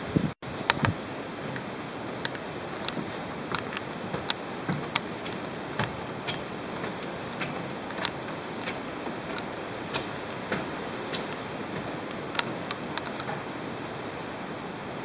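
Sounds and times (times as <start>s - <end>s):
heavy rain hissing: 0.0s - 15.0s
sharp ticks and clicks: 2.2s - 13.5s.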